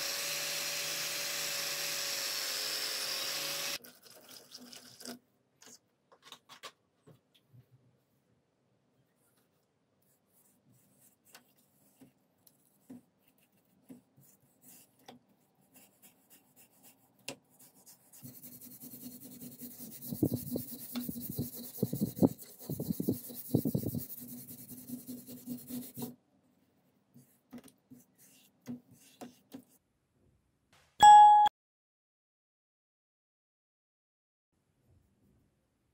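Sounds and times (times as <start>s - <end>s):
paintbrush scrubbing metal: 10.0s - 26.1s, 27.2s - 29.8s.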